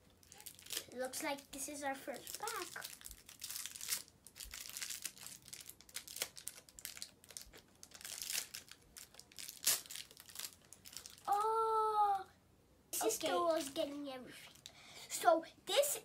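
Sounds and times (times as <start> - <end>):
plastic wrapper crinkling and tearing: 0.0 - 1.2, 2.1 - 11.6.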